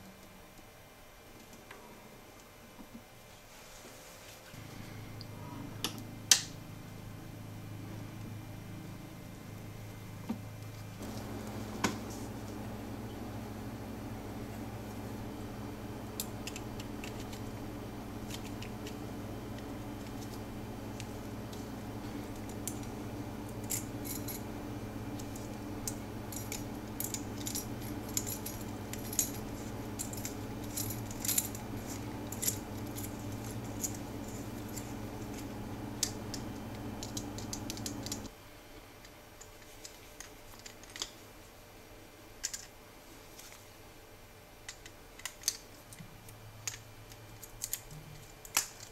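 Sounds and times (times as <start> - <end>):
steady low hum: 4.5 - 38.3
small metal parts clinking: 23.6 - 24.4, 26.3 - 35.4.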